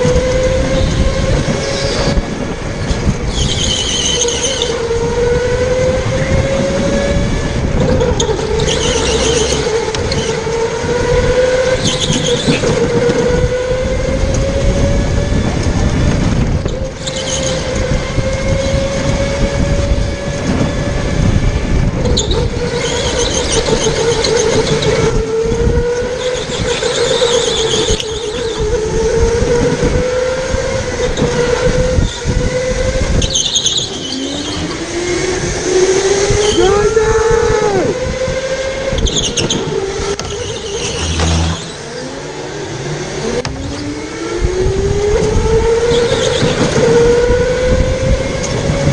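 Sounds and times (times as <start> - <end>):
electric motor whining: 0.0 - 48.9
rumble of wind and road: 0.0 - 48.9
tyre squeal: 3.3 - 4.8, 8.0 - 10.4, 11.8 - 12.8, 16.7 - 17.7, 33.2 - 34.8, 40.2 - 42.2.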